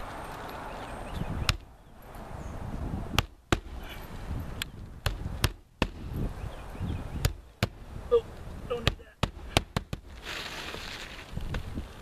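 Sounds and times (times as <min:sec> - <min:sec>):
hammer striking roofing nails: 0:08.8 - 0:10.1.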